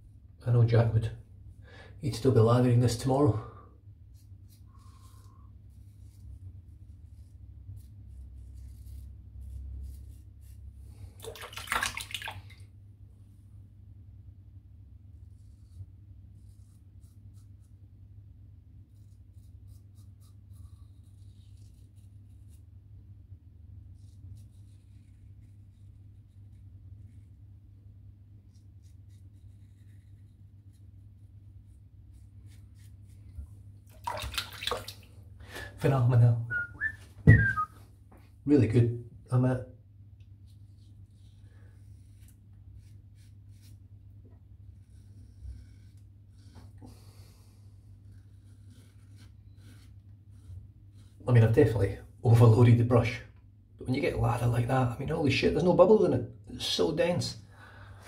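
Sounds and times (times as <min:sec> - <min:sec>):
splashy burst of water: 0:11.2 - 0:12.5, 0:33.9 - 0:35.1.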